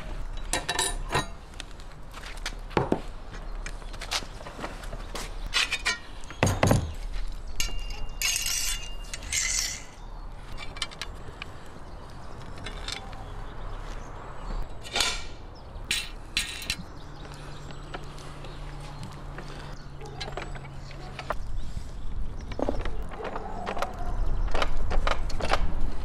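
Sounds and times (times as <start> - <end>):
metal clinks: 5.7 - 10.0
metal forks scraping on rod: 7.6 - 10.0.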